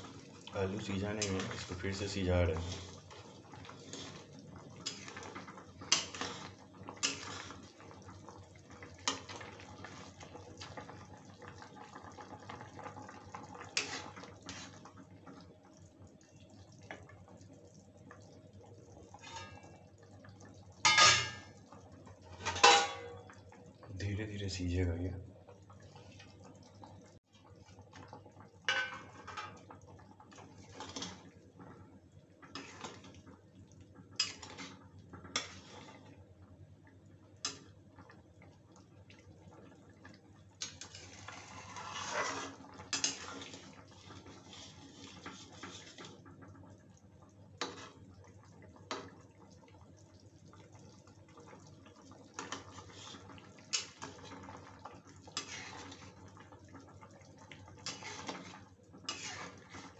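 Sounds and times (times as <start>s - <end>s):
curry bubbling faintly: 0.0s - 59.9s
spatula scraping metal pan: 3.7s - 5.2s, 5.9s - 7.6s, 13.8s - 14.8s, 40.8s - 43.6s, 55.4s - 56.0s, 57.8s - 59.9s.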